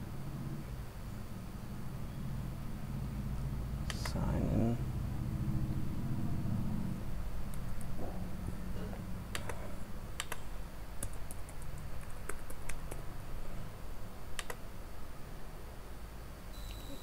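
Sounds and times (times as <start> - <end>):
low steady hum: 0.0 - 17.0
keyboard key clicks: 9.3 - 9.6, 10.2 - 10.4, 14.4 - 14.6.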